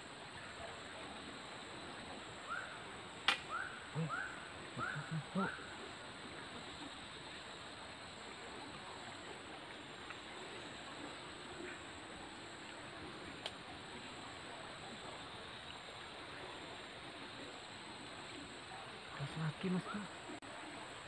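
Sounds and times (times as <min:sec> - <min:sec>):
sharp click: 0:03.2 - 0:03.5
short animal calls: 0:03.5 - 0:05.7.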